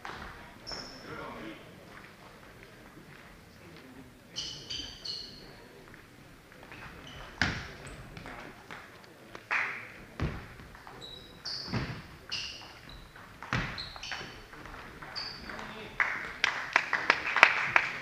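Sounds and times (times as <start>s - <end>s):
shoe squeaks on wooden floor: 0.6s - 1.1s, 4.3s - 5.6s, 6.8s - 7.7s, 10.9s - 15.8s.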